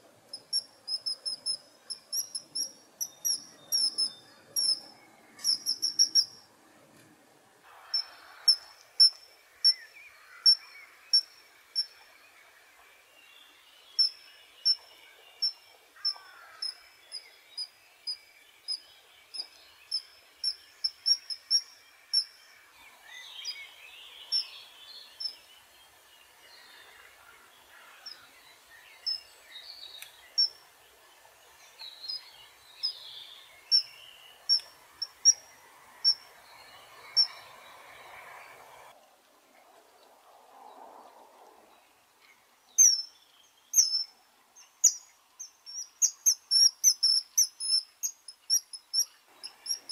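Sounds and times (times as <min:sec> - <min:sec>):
birds chirping faintly: 0:00.0 - 0:39.0, 0:39.9 - 0:49.9
kingfisher calling: 0:00.4 - 0:06.4.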